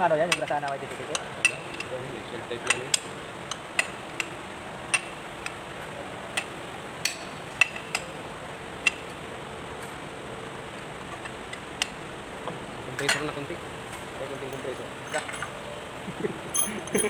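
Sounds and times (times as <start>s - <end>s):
steady low hiss: 0.0s - 17.0s
sharp metallic clicks and clinks: 16.5s - 17.0s.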